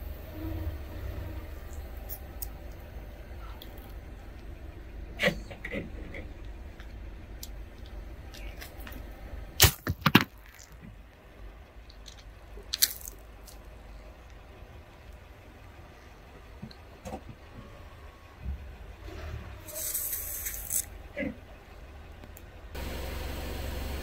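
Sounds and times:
steady low rumble: 0:00.0 - 0:24.0
brittle object cracking: 0:12.0 - 0:13.6.

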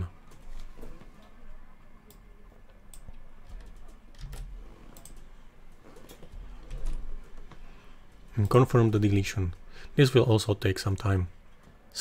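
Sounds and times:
computer keyboard keystrokes: 0:02.9 - 0:05.2.

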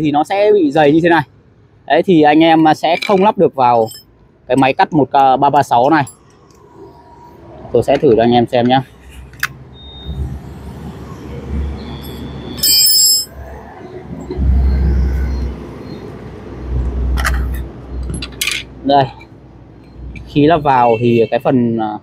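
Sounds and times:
ringing metallic clink: 0:03.0 - 0:04.1, 0:12.0 - 0:13.4.

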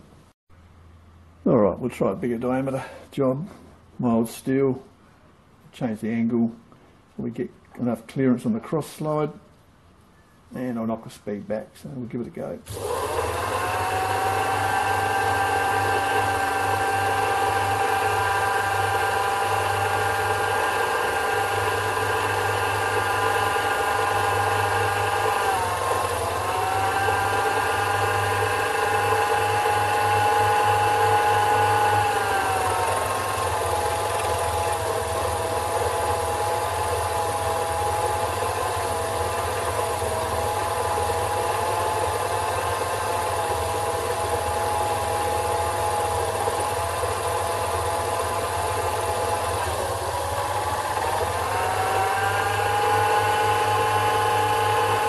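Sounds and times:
lathe motor whine: 0:12.7 - 0:55.0.

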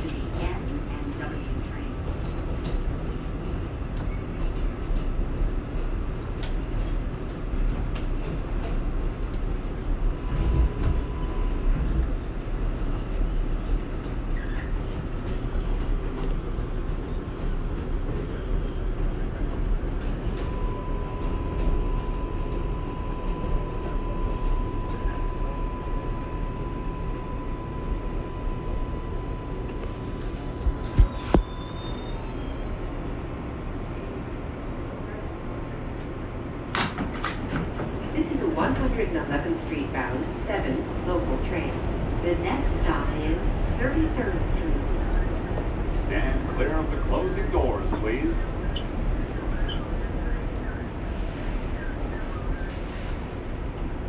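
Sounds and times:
subway train rumble: 0:00.0 - 0:54.0.

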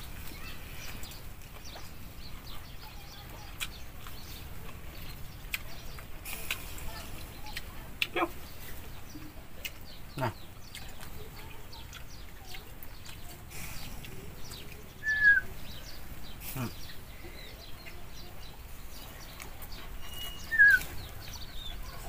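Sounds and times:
faint bird chirps: 0:02.5 - 0:22.0
puppy whining: 0:19.8 - 0:22.0.

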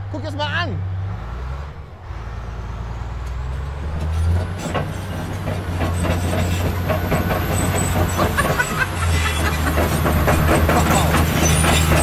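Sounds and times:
bulldozer diesel engine rumble: 0:00.0 - 0:12.0
tracks clanking: 0:03.0 - 0:12.0.

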